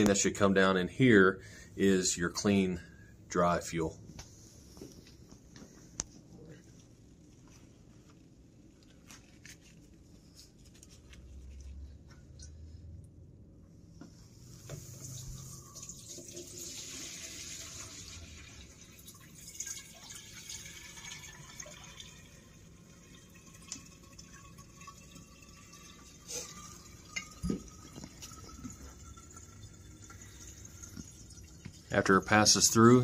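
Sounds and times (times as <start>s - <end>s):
liquid pouring into funnel: 14.3s - 33.0s
thin stream draining into jar: 14.5s - 33.0s.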